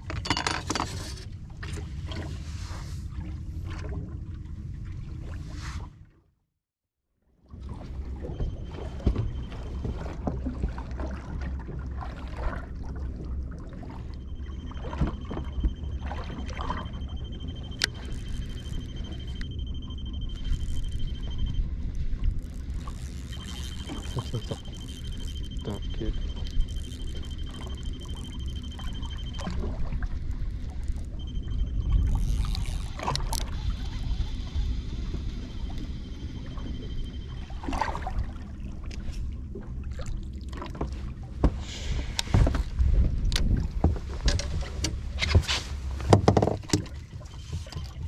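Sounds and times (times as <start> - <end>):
water slapping boat hull: 0.8 - 6.1, 7.5 - 48.0
high electronic beeping tone: 14.2 - 38.4
wind rumble on microphone: 40.8 - 48.0.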